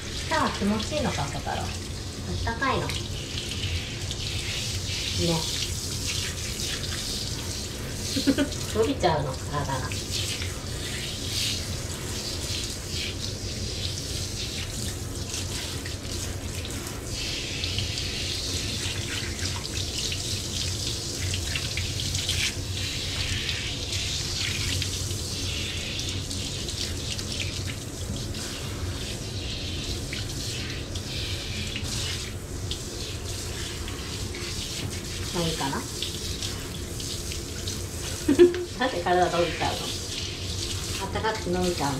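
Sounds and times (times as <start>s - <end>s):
shower spray hissing: 0.0s - 41.9s.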